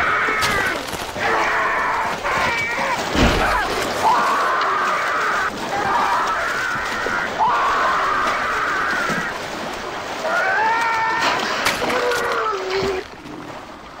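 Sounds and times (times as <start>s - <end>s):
man screaming in agony: 10.2s - 12.8s.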